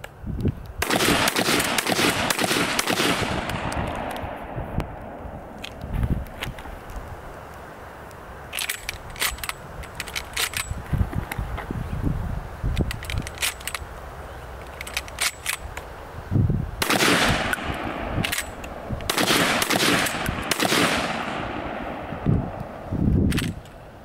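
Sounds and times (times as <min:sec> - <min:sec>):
shotgun metallic clicks: 0:00.0 - 0:11.5, 0:12.7 - 0:14.0, 0:14.6 - 0:16.0, 0:16.8 - 0:23.8
loud gunshots with echo: 0:00.8 - 0:05.3, 0:16.8 - 0:18.3, 0:19.1 - 0:22.8.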